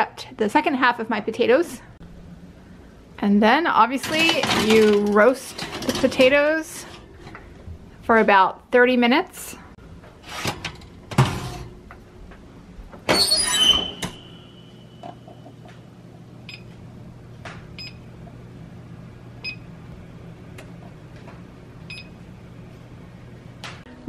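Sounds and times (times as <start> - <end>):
oven door shutting with clatter: 4.0 - 7.5, 10.4 - 11.8
baking sheet sliding onto rack: 10.2 - 11.8
oven keypad beeps: 13.1 - 15.4, 16.5 - 16.7, 17.8 - 18.1, 19.4 - 19.7, 21.9 - 22.2.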